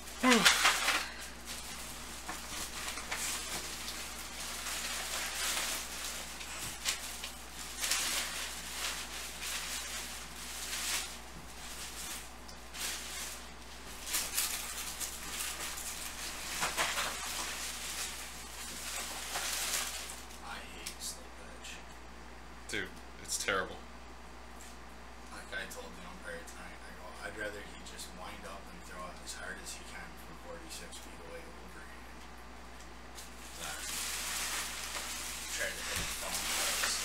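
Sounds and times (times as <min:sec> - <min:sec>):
hands rustling small objects: 0:00.0 - 0:20.4, 0:33.2 - 0:37.0
low electrical hum: 0:00.0 - 0:37.0.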